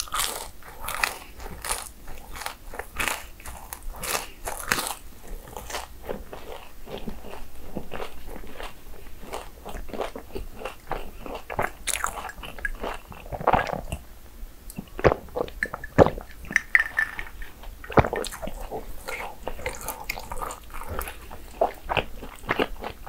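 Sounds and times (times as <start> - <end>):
crunchy food chewing: 0.0 - 14.1, 14.7 - 23.0.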